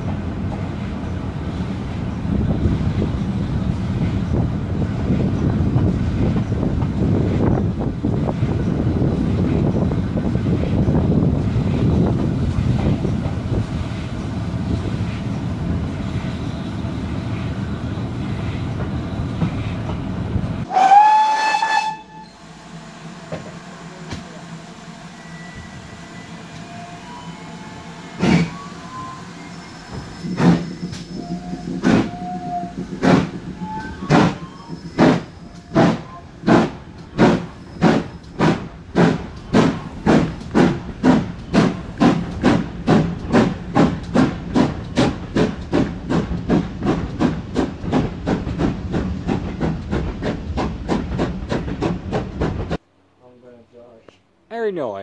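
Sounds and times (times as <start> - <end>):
steam locomotive chuffing: 0.0 - 52.8
moving train rumble: 0.0 - 54.0
wind buffeting microphone: 2.0 - 16.2
steam whistle: 20.7 - 22.4, 25.2 - 32.8, 33.6 - 36.3.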